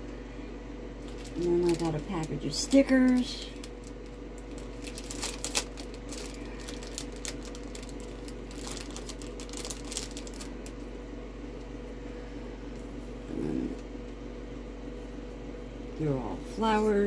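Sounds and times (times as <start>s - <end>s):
plastic packaging crinkling: 1.0s - 10.9s.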